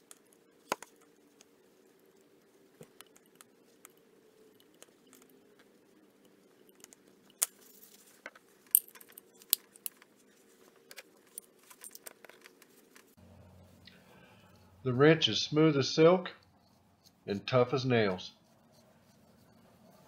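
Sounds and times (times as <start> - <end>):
faint steady hum: 0.0 - 20.0
metal wrench parts clinking: 8.7 - 10.0.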